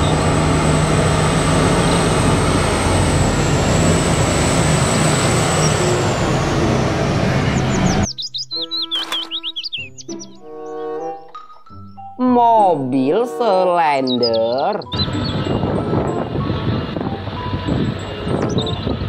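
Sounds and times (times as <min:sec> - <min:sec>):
dump truck engine driving past: 0:00.0 - 0:08.1, 0:14.9 - 0:19.0
high chirping sounds: 0:07.4 - 0:12.2, 0:13.0 - 0:16.4, 0:17.6 - 0:19.0.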